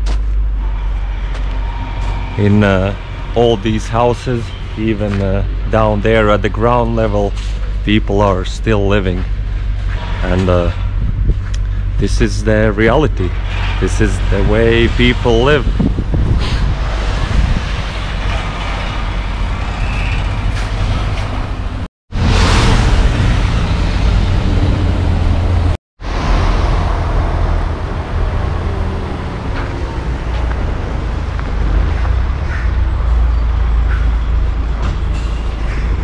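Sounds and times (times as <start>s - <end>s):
car engines running: 0.0s - 36.0s
wind rumble on microphone: 9.0s - 36.0s.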